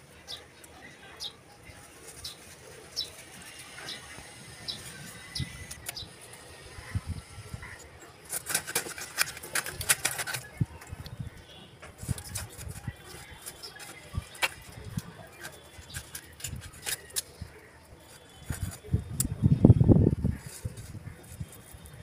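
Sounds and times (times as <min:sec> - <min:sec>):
fish scraping against blade: 0:07.6 - 0:10.6.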